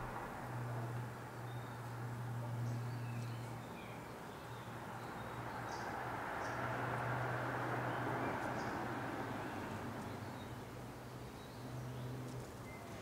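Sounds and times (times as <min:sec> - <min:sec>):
low hum: 0:00.0 - 0:01.1.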